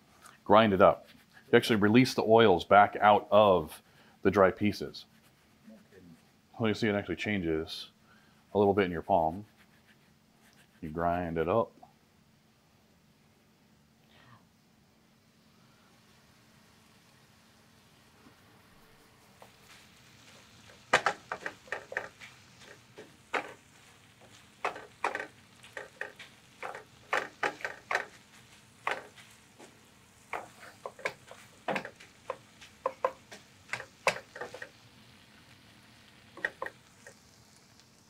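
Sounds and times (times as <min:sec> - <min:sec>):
food sizzling: 0:15.3 - 0:38.0
utensil scraping a skillet: 0:19.4 - 0:34.8.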